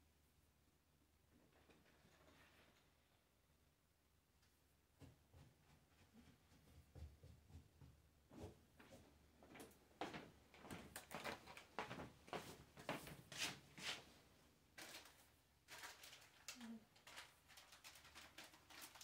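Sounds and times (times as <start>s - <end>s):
objects knocking and clattering: 1.3s - 3.2s.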